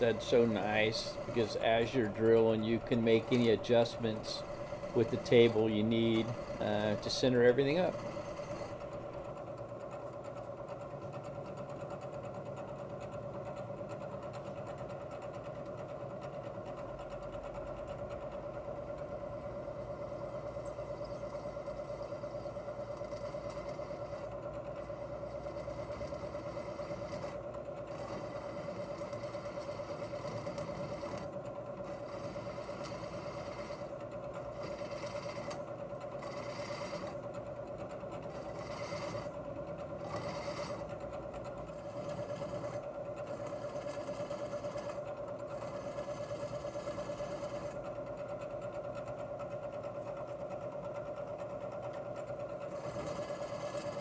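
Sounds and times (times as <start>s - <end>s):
drill bit cutting steel: 0.0s - 9.2s, 31.9s - 33.8s, 34.5s - 35.6s, 36.2s - 37.2s, 38.3s - 39.3s, 40.0s - 40.9s
milling machine spindle whine: 0.0s - 10.1s, 18.0s - 50.4s, 51.4s - 54.0s.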